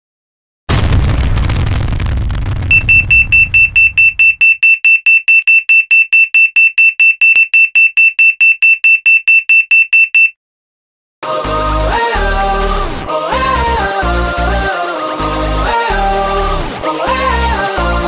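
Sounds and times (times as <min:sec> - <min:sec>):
electronic alarm beeping rapidly: 0:02.7 - 0:10.3.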